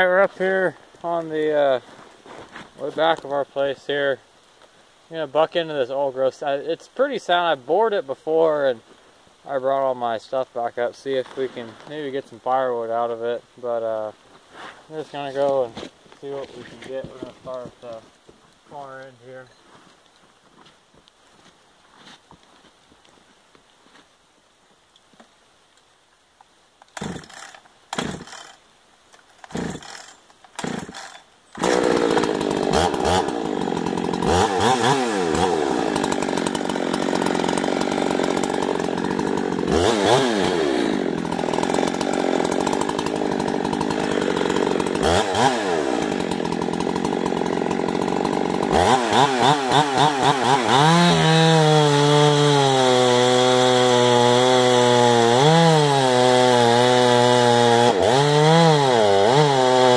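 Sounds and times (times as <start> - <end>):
chainsaw engine running: 27.0 - 28.6, 29.4 - 59.9.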